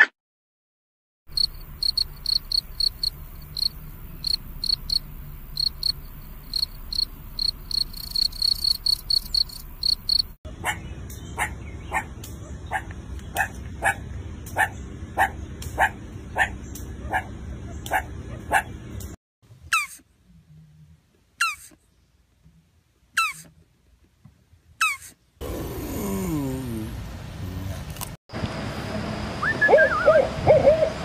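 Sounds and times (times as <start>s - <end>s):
cricket chirping: 1.3s - 10.4s
dog barking: 11.4s - 18.8s.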